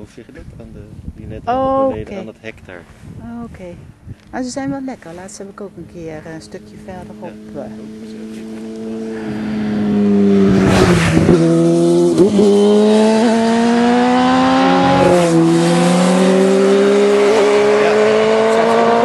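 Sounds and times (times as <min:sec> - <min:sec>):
motorcycle engine running: 0:04.4 - 0:15.5.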